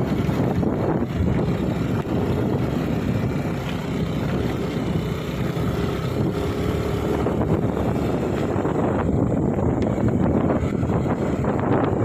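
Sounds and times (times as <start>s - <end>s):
motorcycle engine running: 0.0s - 12.0s
wind on microphone: 0.0s - 12.0s.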